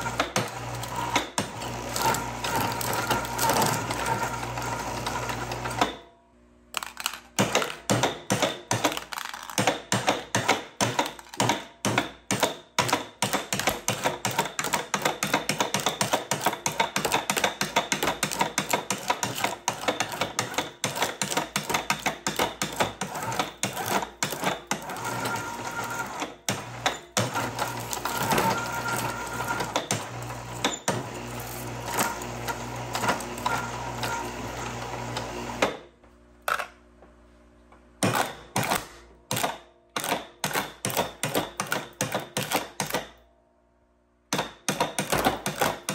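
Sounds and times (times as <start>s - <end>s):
shredder crunching metal cans: 0.0s - 6.0s, 6.7s - 35.8s, 44.6s - 45.9s.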